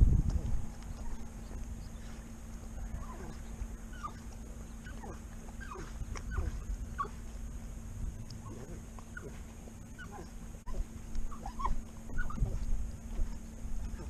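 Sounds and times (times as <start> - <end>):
dog whining and whimpering: 0.4 - 1.3, 2.8 - 7.2, 10.0 - 14.0.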